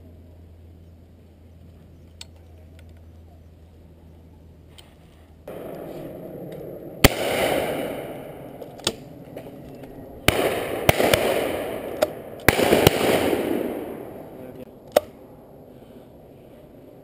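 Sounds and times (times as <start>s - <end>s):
loud shotgun shots: 5.5s - 9.1s, 10.2s - 15.1s
distant gunshots: 5.5s - 9.6s, 10.2s - 14.6s.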